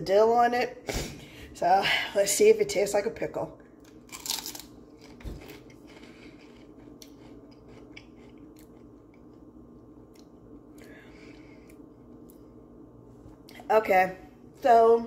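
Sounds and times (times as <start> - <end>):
person chewing potato chip: 3.8 - 10.9.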